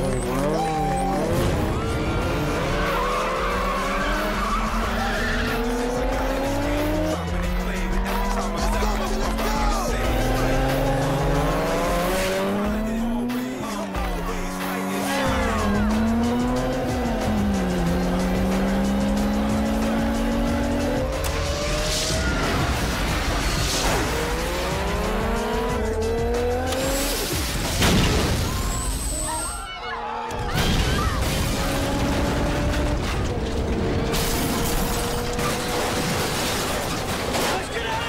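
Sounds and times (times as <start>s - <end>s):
car engines at high revs: 0.0s - 27.5s, 31.4s - 36.5s
music soundtrack: 0.0s - 27.9s.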